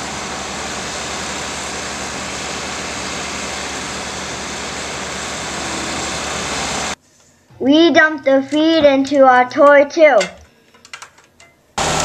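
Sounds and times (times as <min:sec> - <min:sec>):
diesel engine drone: 0:00.0 - 0:07.0, 0:11.8 - 0:12.0
feed rushing into mixer: 0:00.0 - 0:07.0, 0:11.8 - 0:12.0.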